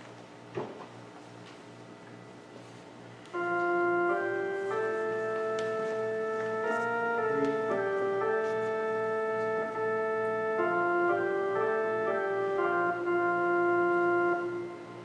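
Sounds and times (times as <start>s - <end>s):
organ playing chords: 3.2s - 15.0s.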